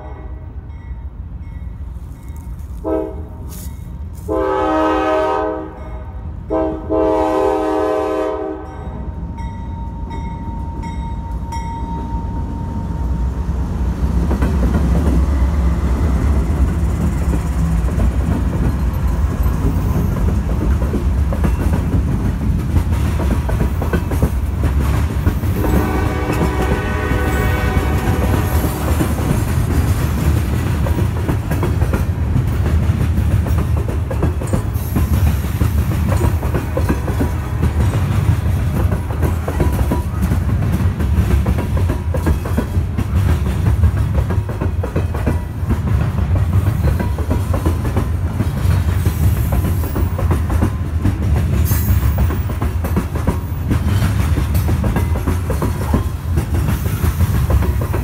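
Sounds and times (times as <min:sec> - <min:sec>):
train horn: 0:00.0 - 0:00.6, 0:02.8 - 0:03.6, 0:04.2 - 0:09.1, 0:25.5 - 0:29.3
train cars rolling past: 0:00.0 - 0:58.0
wheels clacking over rail joints: 0:14.2 - 0:58.0.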